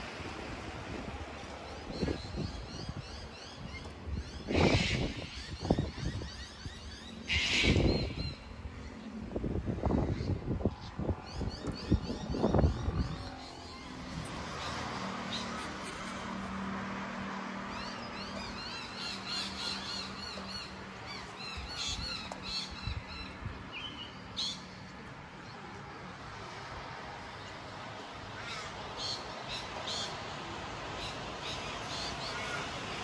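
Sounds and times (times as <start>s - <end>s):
birds chirping: 9.9s - 16.4s, 17.0s - 25.8s.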